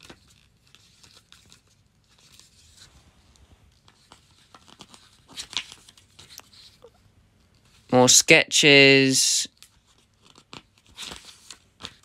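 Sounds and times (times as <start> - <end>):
book pages turning: 0.0 - 6.8, 9.6 - 12.0.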